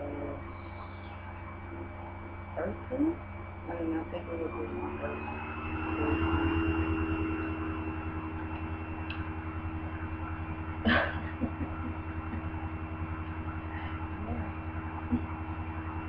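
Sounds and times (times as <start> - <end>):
low electrical hum: 0.0 - 16.0
faint high tone: 1.7 - 9.0
woman laughing briefly: 10.9 - 12.4.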